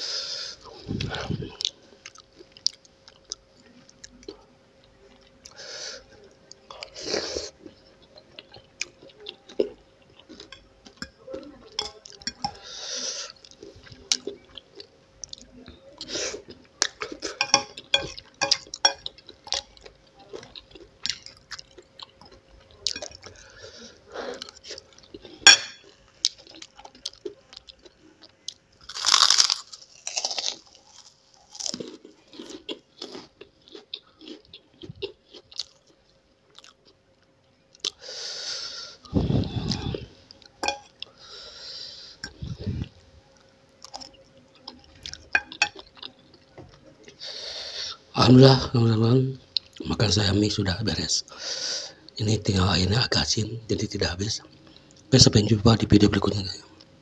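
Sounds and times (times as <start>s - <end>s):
crackers crunching: 16.5s - 38.8s, 39.4s - 47.4s
wet chewing: 43.8s - 47.2s.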